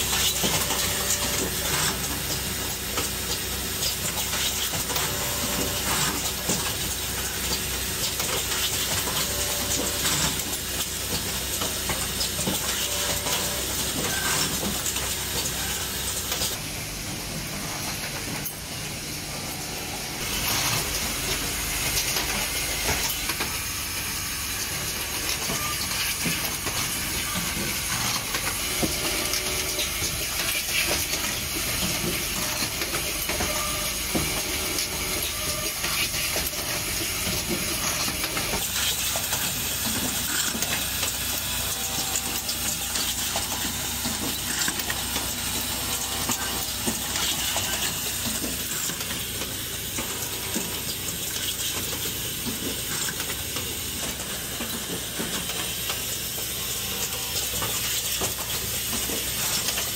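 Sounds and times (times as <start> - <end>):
pneumatic clicks and clacks: 24.5 - 59.9.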